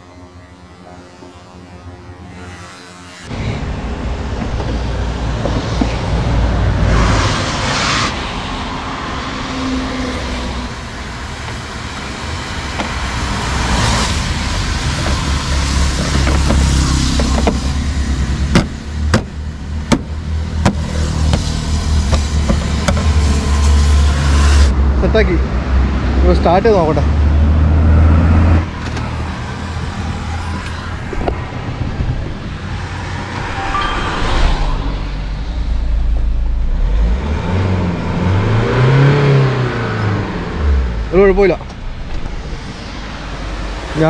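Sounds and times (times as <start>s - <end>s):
tyres hissing on wet road: 6.9s - 18.2s
low rumble: 28.6s - 38.8s, 40.2s - 44.0s.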